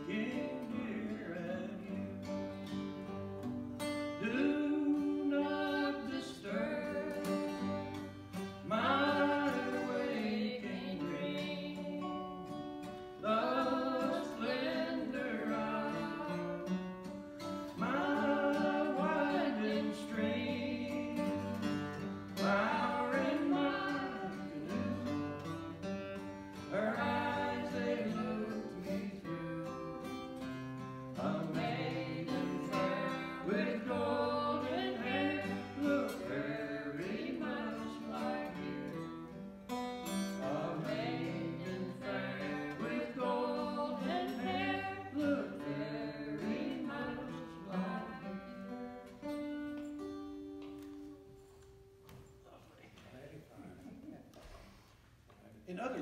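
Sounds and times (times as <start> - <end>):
acoustic guitar folk song: 0.0 - 55.0
person singing: 22.4 - 25.5, 26.7 - 30.5, 31.2 - 39.0, 40.4 - 48.6.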